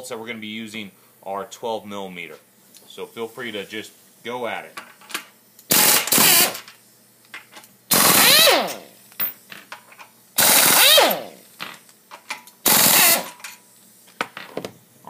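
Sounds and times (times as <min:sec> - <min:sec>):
pneumatic impact wrench bursts: 0:05.6 - 0:06.8, 0:07.9 - 0:09.5, 0:10.4 - 0:13.9.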